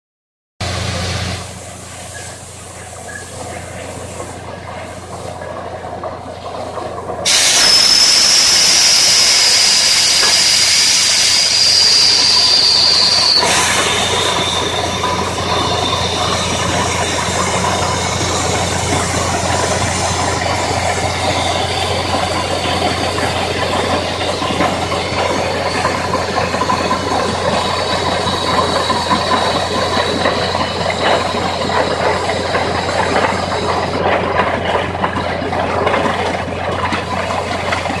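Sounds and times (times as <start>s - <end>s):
compressed air hissing and whistling: 1.8s - 5.5s, 7.2s - 34.1s.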